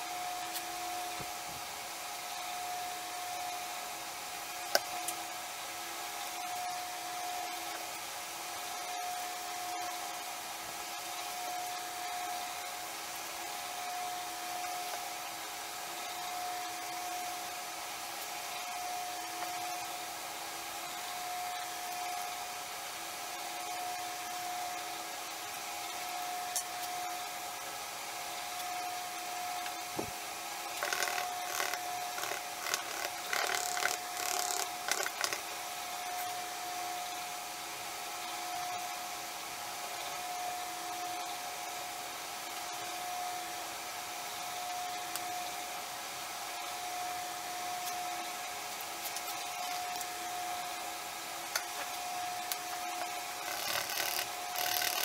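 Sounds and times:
steady machine hum: 0.0s - 55.0s
stick scraping and tapping plastic cup: 30.8s - 35.4s.

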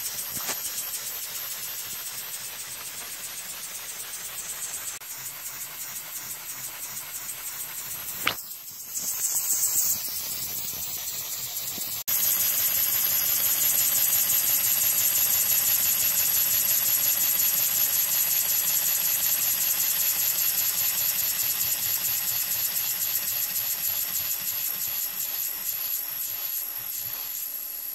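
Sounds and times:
model air engine hissing and pulsing: 0.0s - 27.9s
sharp click: 8.1s - 9.9s.

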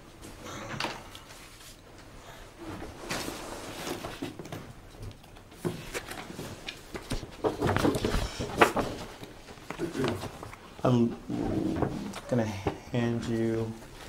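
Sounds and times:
papers rustling and knocking: 2.8s - 14.0s.

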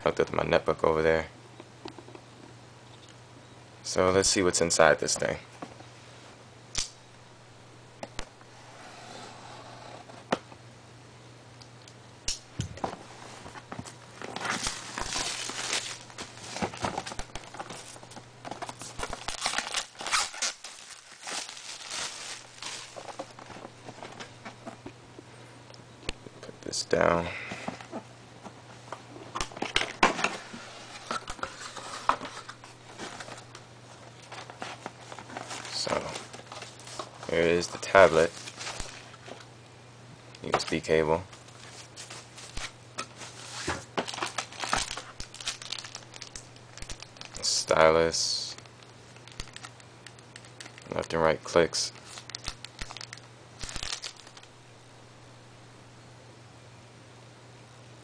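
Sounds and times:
low steady hum: 0.0s - 58.0s
cardboard scraping and rustling: 12.8s - 24.8s.

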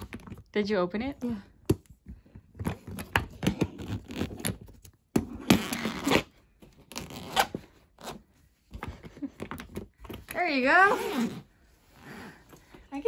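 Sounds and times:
zipper and lock clicks and scrapes: 2.6s - 4.6s, 5.2s - 8.2s, 10.8s - 11.5s
zipper rasping: 2.6s - 4.6s, 5.3s - 8.2s, 10.6s - 11.6s.

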